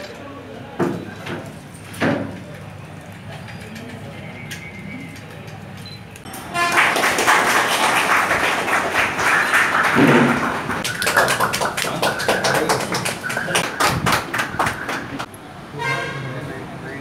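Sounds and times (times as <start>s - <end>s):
mingled voices: 0.0s - 15.7s
crowd hand clapping: 6.2s - 15.3s.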